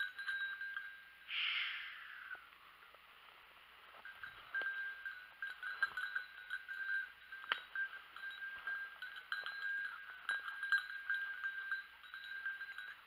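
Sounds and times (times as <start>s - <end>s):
dog bell jangling: 0.0s - 1.3s, 3.9s - 13.0s.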